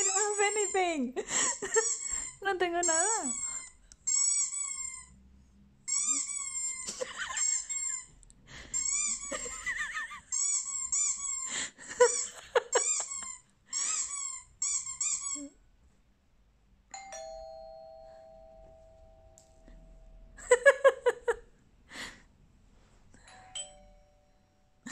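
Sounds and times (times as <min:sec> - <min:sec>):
high-pitched squeaks: 0:00.0 - 0:01.0, 0:01.6 - 0:05.2, 0:05.9 - 0:08.1, 0:08.8 - 0:15.6
two-tone doorbell chime: 0:16.9 - 0:20.4, 0:23.2 - 0:24.9.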